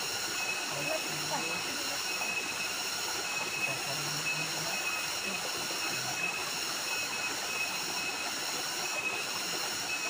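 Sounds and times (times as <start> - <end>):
waterfall splashing into pool: 0.0 - 10.0.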